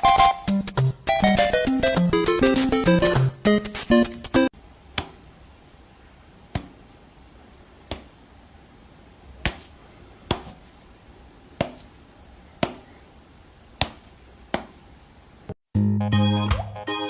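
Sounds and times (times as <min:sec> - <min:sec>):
cat paw slapping a hand: 0:04.9 - 0:05.2, 0:06.5 - 0:06.8, 0:07.8 - 0:08.2, 0:09.4 - 0:09.7, 0:10.3 - 0:10.7, 0:11.6 - 0:11.9, 0:12.6 - 0:12.9, 0:13.8 - 0:14.8.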